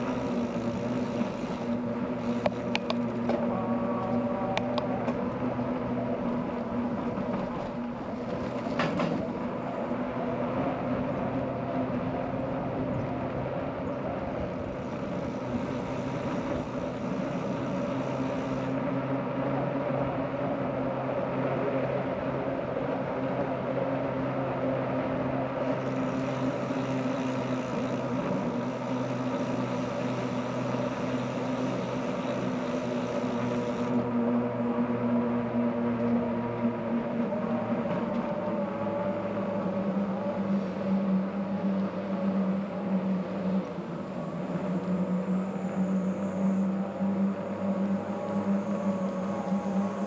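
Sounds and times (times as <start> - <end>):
bicycle riding on road: 0.0 - 21.2, 24.9 - 50.0
high hiss: 14.5 - 18.8, 25.6 - 34.0.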